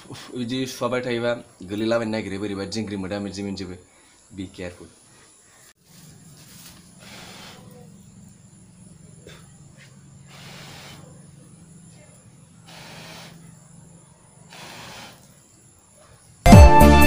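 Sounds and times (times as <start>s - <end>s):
person blowing on embers: 6.7s - 7.8s, 10.2s - 11.1s, 12.6s - 13.5s, 14.5s - 15.6s
loud music with falling tones: 16.5s - 17.0s.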